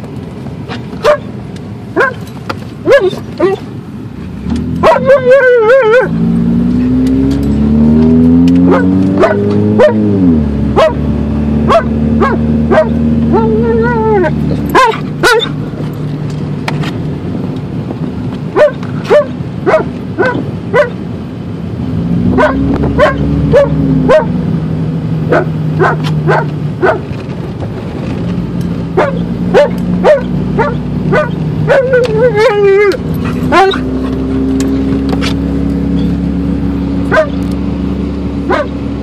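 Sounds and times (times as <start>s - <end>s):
car engine humming: 0.0s - 39.0s
dog barking and yipping: 0.7s - 3.7s, 4.8s - 6.2s, 8.6s - 10.1s, 10.7s - 16.0s, 18.5s - 21.0s, 22.3s - 24.4s, 25.2s - 27.2s, 28.9s - 36.2s, 37.1s - 37.5s, 38.4s - 38.8s.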